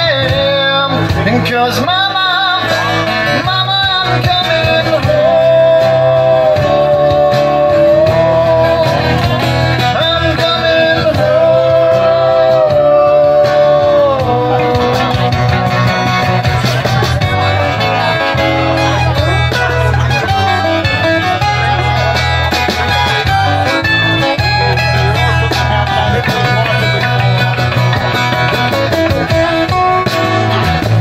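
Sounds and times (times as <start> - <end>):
acoustic guitars and keyboard: 0.0 - 31.0
person singing long notes: 1.8 - 15.9.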